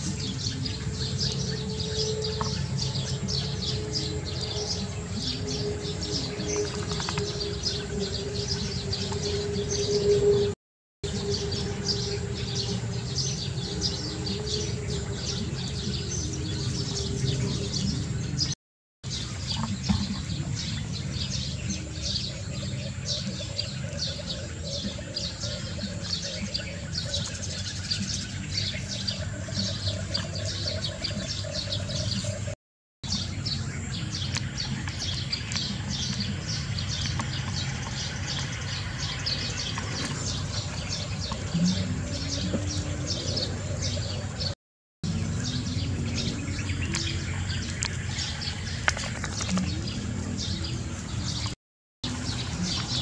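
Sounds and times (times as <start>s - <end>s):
small birds chirping: 11.1s - 53.0s.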